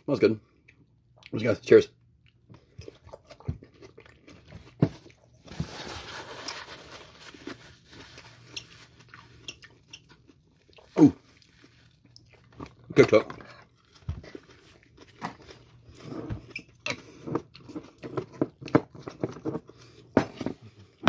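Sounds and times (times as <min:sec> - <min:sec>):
person chewing crunchy pepper: 0:02.2 - 0:05.4, 0:07.3 - 0:20.0
wet mouth clicks: 0:09.4 - 0:10.2.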